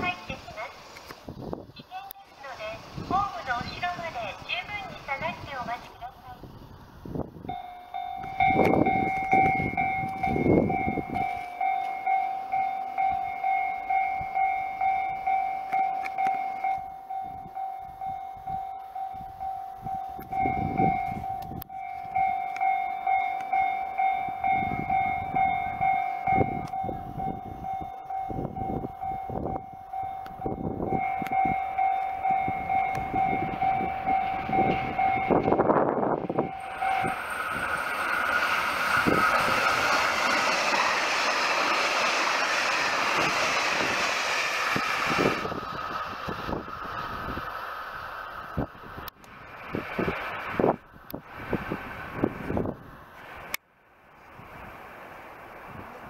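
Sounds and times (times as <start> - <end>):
diesel train approaching: 0.0 - 56.0
level-crossing alarm ringing: 7.4 - 44.0.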